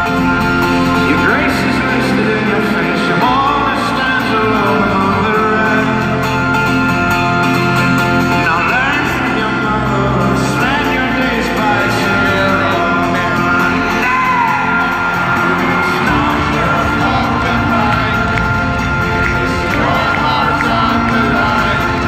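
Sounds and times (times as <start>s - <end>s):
folk-rock band playing live: 0.0s - 22.0s
lead vocals: 0.0s - 22.0s
crowd shouting and whooping: 13.0s - 22.0s.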